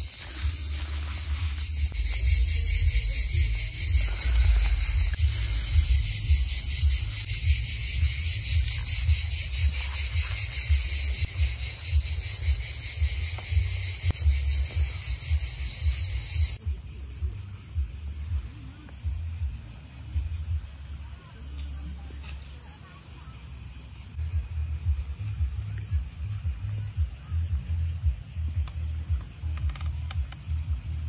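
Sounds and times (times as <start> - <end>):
low uneven rumble: 0.0 - 21.0
insects chirring: 0.0 - 31.0.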